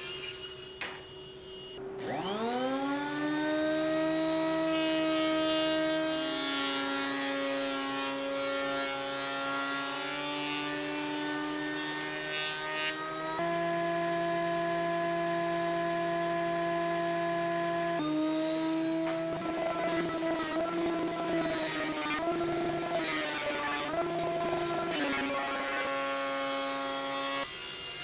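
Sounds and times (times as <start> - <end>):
planer motor hum: 12.9 - 27.0.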